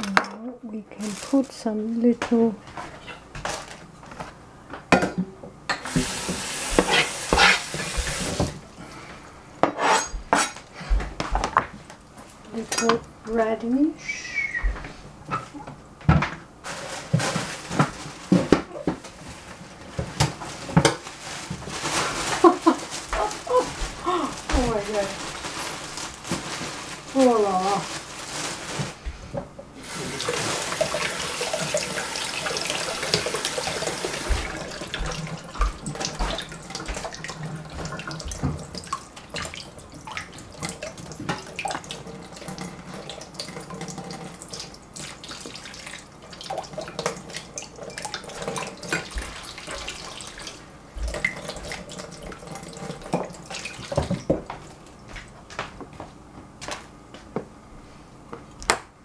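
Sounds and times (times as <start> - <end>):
tap water running: 5.1 - 9.2, 14.6 - 55.3
radishes knocking in sink: 19.9 - 37.2.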